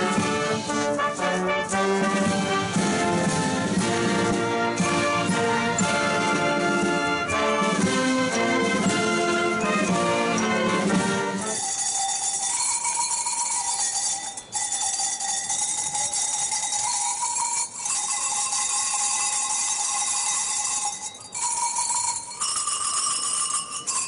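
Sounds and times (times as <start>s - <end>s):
hand bells jangling: 11.4s - 24.0s.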